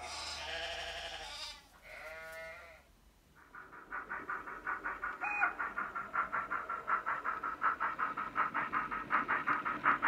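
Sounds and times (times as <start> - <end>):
model steam locomotive chuffing: 3.3 - 10.0.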